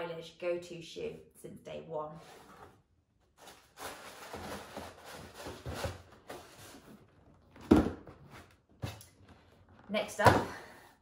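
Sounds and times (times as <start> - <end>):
cardboard box rustling and scraping: 3.4 - 8.6
box set down thump: 7.6 - 8.2.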